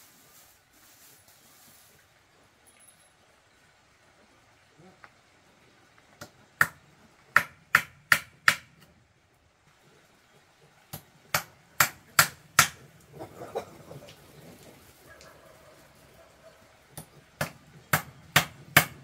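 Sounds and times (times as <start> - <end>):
sharp hand tool strikes: 7.4 - 8.8, 10.9 - 12.8, 17.0 - 19.0.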